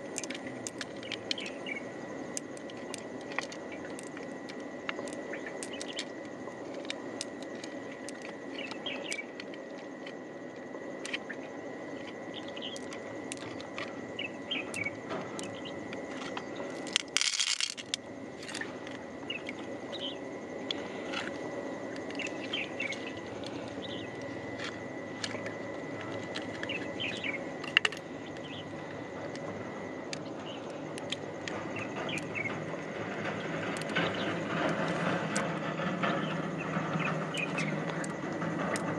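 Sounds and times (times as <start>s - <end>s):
birds chirping: 0.9s - 1.9s, 4.9s - 6.2s, 8.4s - 9.4s, 12.3s - 16.8s, 19.1s - 20.3s, 21.8s - 24.6s, 25.3s - 35.2s, 35.8s - 38.1s.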